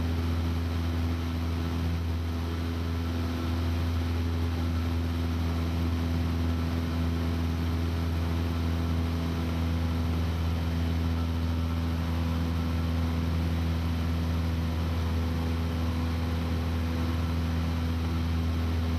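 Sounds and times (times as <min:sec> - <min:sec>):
aircraft engine drone: 0:00.0 - 0:18.9.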